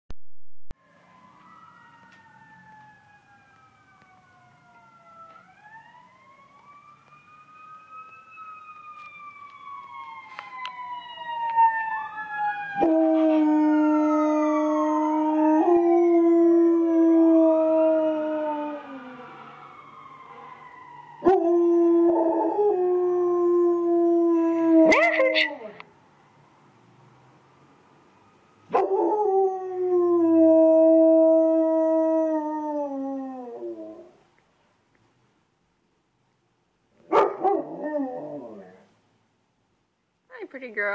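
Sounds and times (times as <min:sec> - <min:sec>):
emergency vehicle sirens wailing: 0:00.7 - 0:34.2, 0:37.4 - 0:38.9
dog howling: 0:37.1 - 0:38.8.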